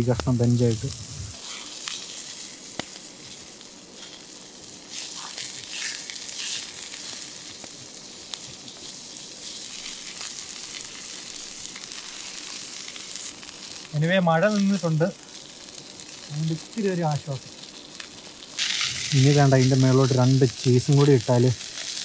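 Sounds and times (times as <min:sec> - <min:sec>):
food sizzling in a frying pan: 0:00.0 - 0:22.0
sharp pops: 0:02.7 - 0:03.0.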